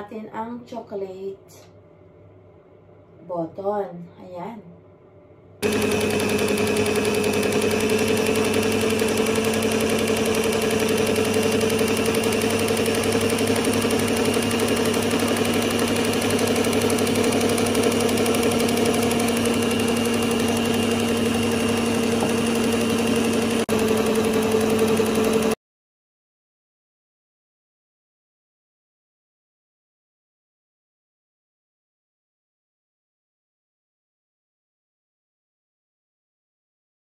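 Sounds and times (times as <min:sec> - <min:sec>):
electric mixer whisking batter: 0:05.6 - 0:25.6.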